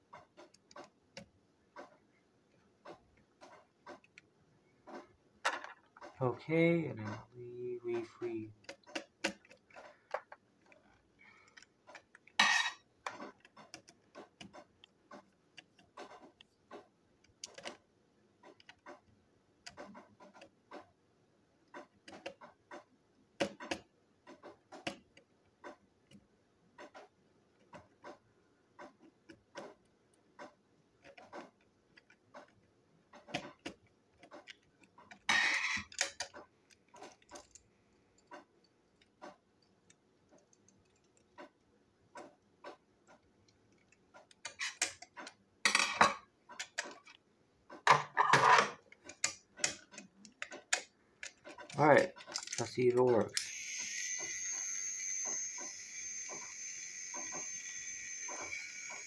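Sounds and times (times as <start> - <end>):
screwdriver clicking and scraping: 0.0 - 2.0, 8.6 - 17.8, 18.4 - 21.0, 26.8 - 41.6, 42.2 - 45.4, 48.4 - 59.0.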